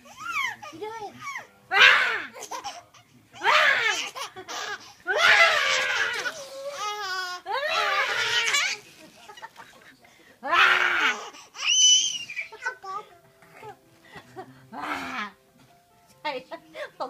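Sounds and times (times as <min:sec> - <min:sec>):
baby squealing: 0:00.1 - 0:02.8, 0:03.4 - 0:08.8, 0:10.5 - 0:12.8
baby laughing: 0:02.2 - 0:09.8, 0:10.7 - 0:13.8.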